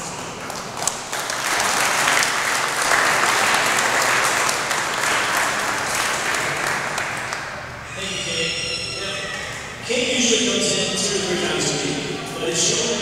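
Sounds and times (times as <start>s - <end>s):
audience applauding: 0.4s - 7.7s.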